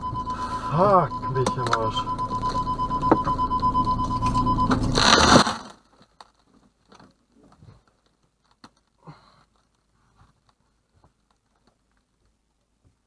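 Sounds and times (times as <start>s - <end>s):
steady high tone: 0.0s - 5.0s
low engine drone: 0.0s - 5.2s
windscreen smashing crash: 4.7s - 5.9s
faint clicks and patter: 5.8s - 13.0s.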